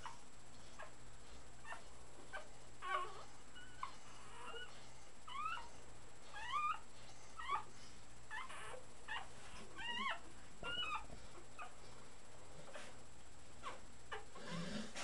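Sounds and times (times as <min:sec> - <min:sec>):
puppies squeaking and whimpering: 0:01.6 - 0:05.7, 0:06.3 - 0:06.8, 0:07.4 - 0:07.7, 0:08.3 - 0:11.8, 0:13.6 - 0:14.6.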